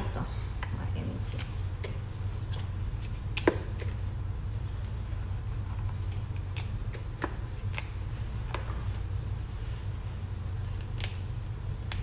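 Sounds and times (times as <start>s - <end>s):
steady low hum: 0.0s - 12.0s
leaves snapping off stems: 6.0s - 8.6s, 10.6s - 12.0s.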